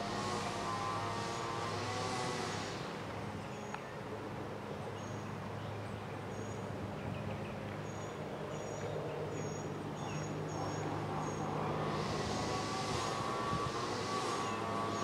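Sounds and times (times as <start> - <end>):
diesel locomotive engine drone: 0.0 - 3.8, 9.3 - 15.0.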